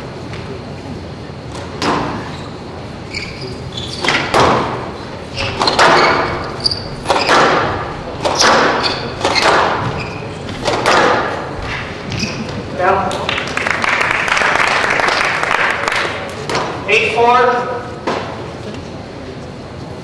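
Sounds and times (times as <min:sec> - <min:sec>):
squash ball hits: 0:01.5 - 0:02.3, 0:04.0 - 0:13.5, 0:16.0 - 0:16.8
shoes squeaking on court floor: 0:01.5 - 0:13.0.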